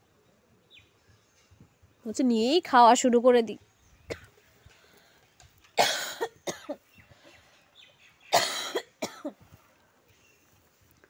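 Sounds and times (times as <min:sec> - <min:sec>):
woman coughing: 0:05.8 - 0:06.8, 0:08.3 - 0:09.4.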